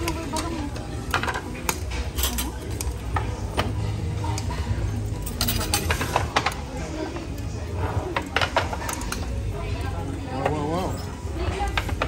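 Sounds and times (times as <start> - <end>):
plastic trays and dishes clattering: 0.0 - 3.8, 5.2 - 6.8, 7.9 - 9.2, 11.5 - 12.0.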